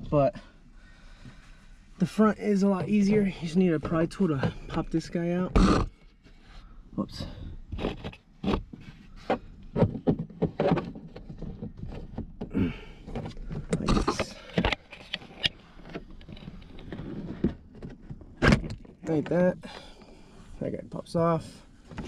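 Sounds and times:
plastic clicks and scrapes: 0:07.7 - 0:12.4, 0:13.0 - 0:19.3.

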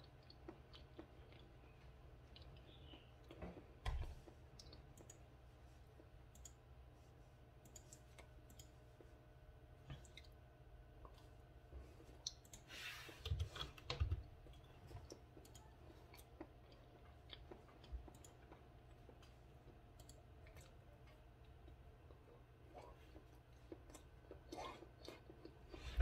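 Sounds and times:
person chewing: 0:00.0 - 0:05.2, 0:09.9 - 0:10.4, 0:13.5 - 0:26.0.

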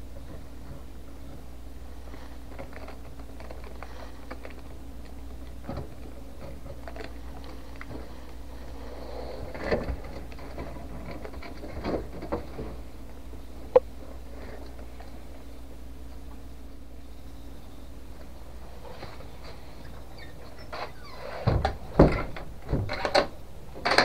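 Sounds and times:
steady low hum: 0:00.0 - 0:24.0
iguana chewing food: 0:00.1 - 0:16.3.

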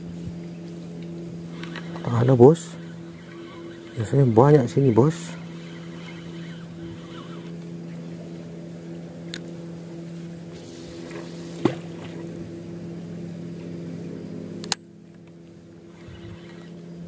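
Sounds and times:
engine running steadily: 0:00.0 - 0:17.0
fishing reel clicks: 0:01.5 - 0:07.6, 0:15.9 - 0:16.8.

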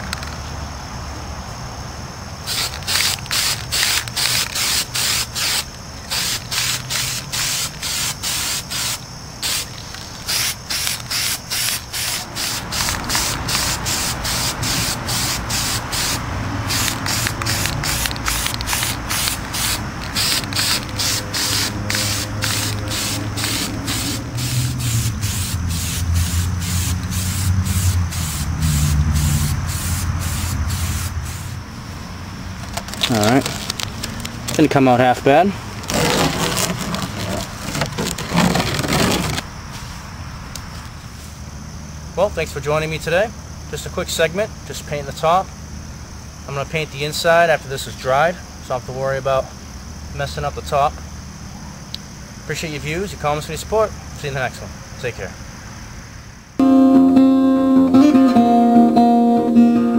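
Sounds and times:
spray paint can hissing: 0:02.4 - 0:31.6, 0:35.9 - 0:39.4.

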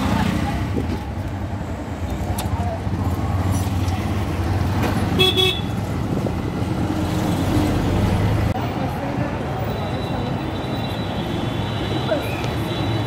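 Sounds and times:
vehicle horn toots: 0:05.2 - 0:05.7.

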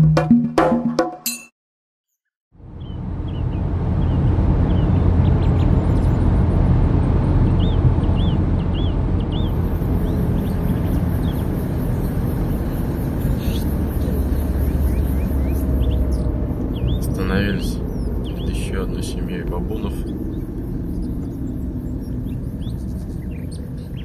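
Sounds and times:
vehicle driving rumble: 0:02.6 - 0:24.0
birds chirping: 0:02.8 - 0:24.0
high pulsing hiss: 0:09.5 - 0:24.0.

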